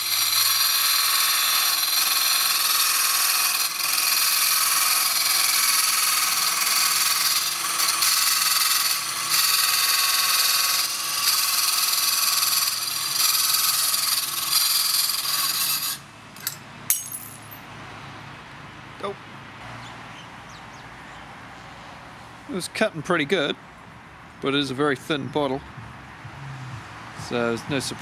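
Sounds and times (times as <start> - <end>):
tile cutter grinding through glass: 0.0 - 16.6.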